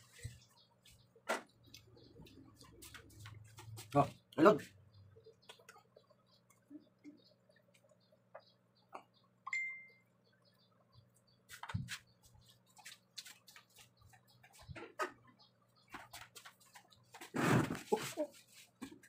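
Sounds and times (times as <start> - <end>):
eating taps and clicks: 1.3 - 4.4, 5.3 - 6.6.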